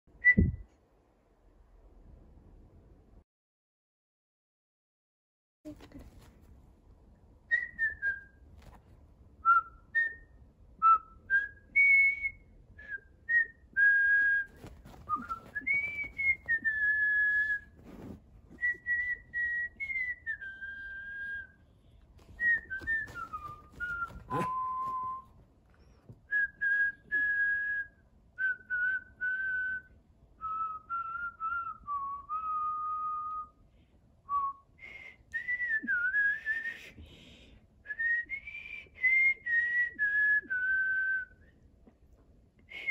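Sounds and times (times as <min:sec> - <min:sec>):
person whistling: 0:00.2 - 0:00.6, 0:09.4 - 0:21.6, 0:22.4 - 0:25.4, 0:34.3 - 0:37.0, 0:37.9 - 0:41.4.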